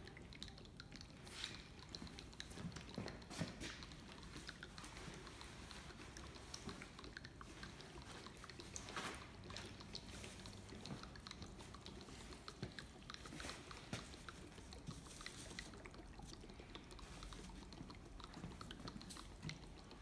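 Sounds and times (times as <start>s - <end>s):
liquid glugging faintly: 0.0s - 20.0s.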